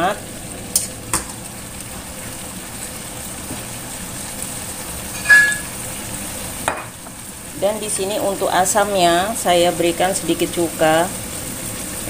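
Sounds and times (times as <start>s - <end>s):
food sizzling in a wok: 0.0s - 12.0s
metal clink: 5.2s - 5.7s.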